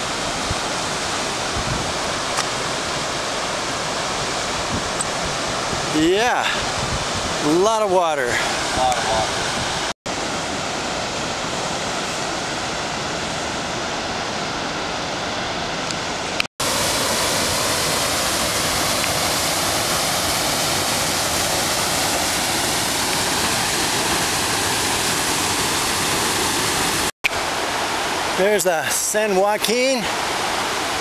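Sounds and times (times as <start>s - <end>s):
river rushing through rocks: 7.9s - 31.0s
waterfall pouring into pool: 16.6s - 31.0s.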